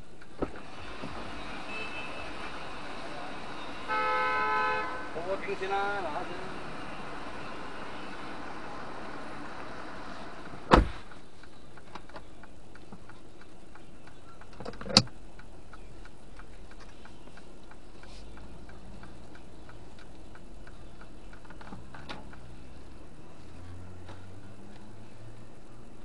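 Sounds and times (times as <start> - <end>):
car cabin hum: 2.5 - 26.0
faint light ticking: 11.2 - 26.0.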